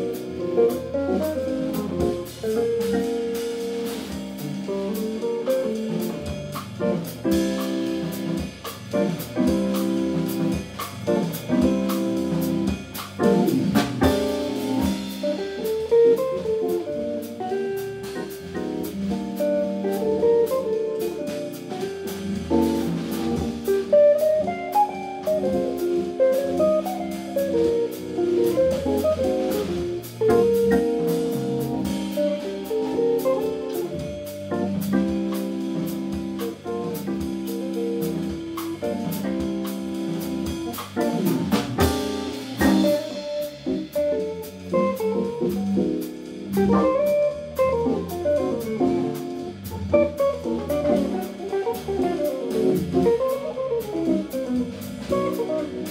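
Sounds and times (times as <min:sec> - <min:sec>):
drum kit and cymbals: 0:00.0 - 0:55.9
guitar lines: 0:00.0 - 0:55.9.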